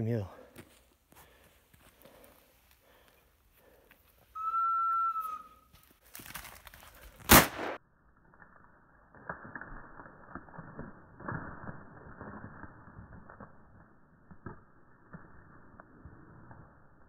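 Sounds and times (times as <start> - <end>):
steady whistle note: 4.3 - 5.8
shotgun shot with echo: 7.3 - 7.8.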